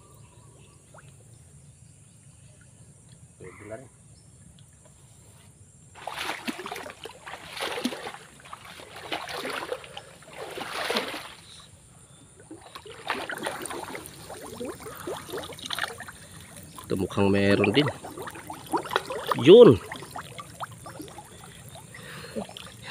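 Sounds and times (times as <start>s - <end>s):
people wading through water: 6.0s - 22.9s.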